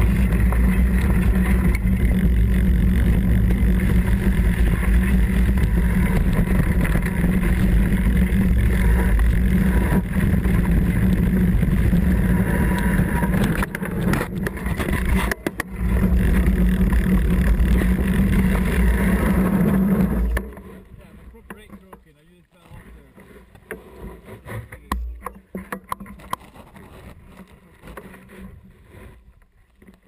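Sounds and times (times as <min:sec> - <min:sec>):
wind on microphone: 0:00.0 - 0:21.2
bike tyre roar: 0:00.0 - 0:21.7.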